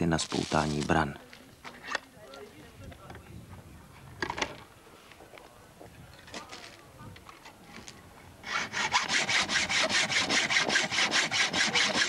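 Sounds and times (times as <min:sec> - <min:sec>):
hacksaw cutting steel: 0:08.4 - 0:12.0.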